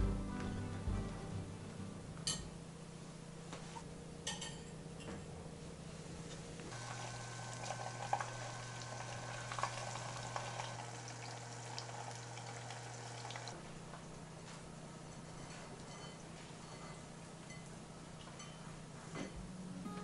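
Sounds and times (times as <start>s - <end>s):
rolls deep-frying in oil: 6.7s - 13.6s.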